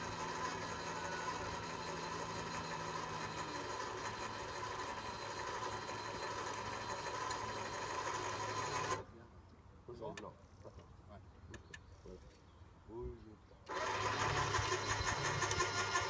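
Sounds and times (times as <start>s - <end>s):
engine idling: 0.0s - 8.9s, 13.7s - 16.0s.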